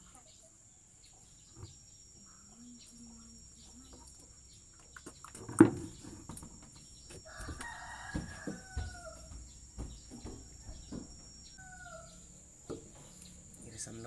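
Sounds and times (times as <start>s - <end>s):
rooster crowing: 7.1s - 12.4s.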